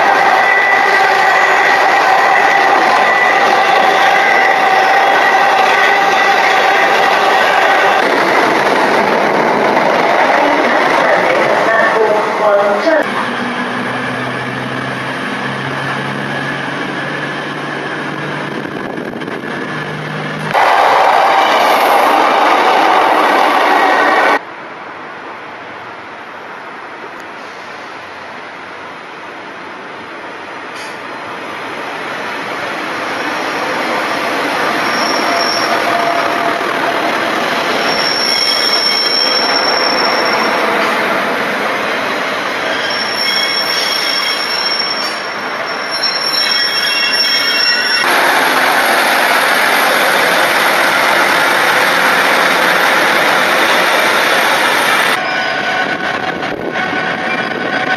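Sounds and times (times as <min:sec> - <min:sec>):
train passing: 0:00.0 - 0:57.9
high-pitched wheel squeal: 0:34.6 - 0:36.5, 0:37.6 - 0:40.7, 0:42.6 - 0:48.2, 0:55.1 - 0:57.9.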